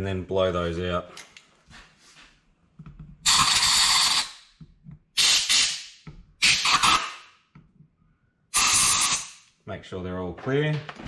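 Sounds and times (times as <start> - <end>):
compressed air blow gun hissing: 5.2 - 7.1, 8.6 - 9.4.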